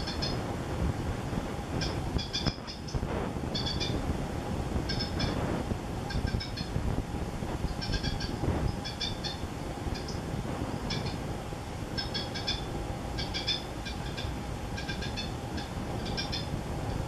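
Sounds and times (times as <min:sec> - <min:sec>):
nestlings cheeping: 0:00.0 - 0:00.4, 0:01.8 - 0:04.0, 0:04.8 - 0:05.4, 0:06.0 - 0:06.8, 0:07.6 - 0:11.2, 0:11.9 - 0:16.6
low hum: 0:00.0 - 0:17.0.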